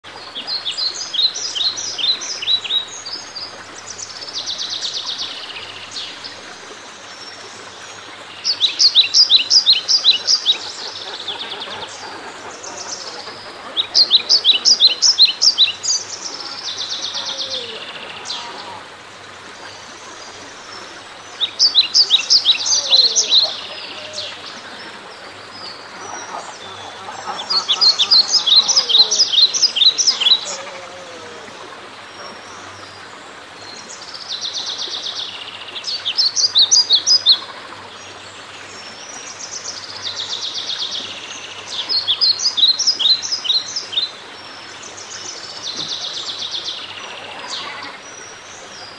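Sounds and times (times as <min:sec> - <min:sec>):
faint outdoor background noise: 0:00.0 - 0:48.9
songbird singing: 0:08.4 - 0:18.8, 0:20.3 - 0:32.8.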